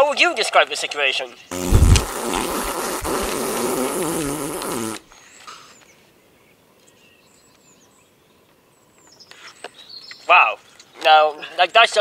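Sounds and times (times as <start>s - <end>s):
loud fart sound: 1.5s - 5.1s.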